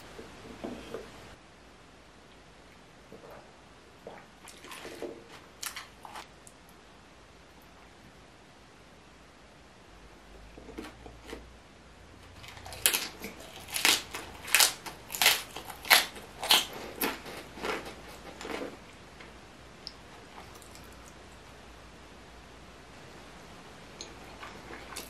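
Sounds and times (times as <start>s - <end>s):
crisp chewing of cabbage: 4.0s - 6.3s, 12.4s - 18.9s, 24.0s - 25.0s.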